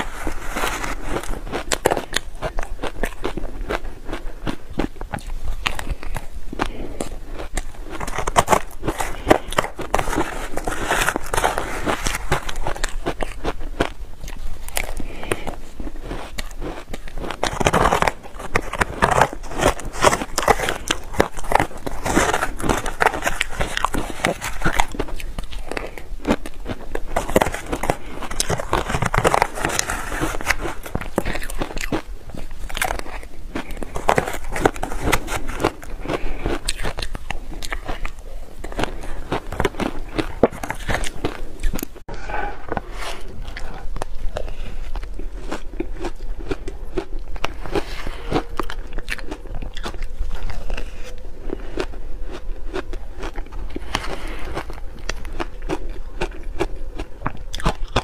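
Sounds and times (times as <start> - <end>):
crunching of shaved ice chewed: 0.0 - 58.0
metal spoon scraping plastic box: 8.0 - 13.1, 17.3 - 25.0, 27.1 - 31.7, 32.8 - 36.0.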